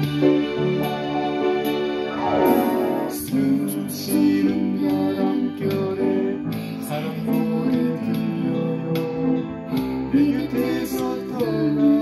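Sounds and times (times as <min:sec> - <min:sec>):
upright piano chords and melody: 0:00.0 - 0:12.0.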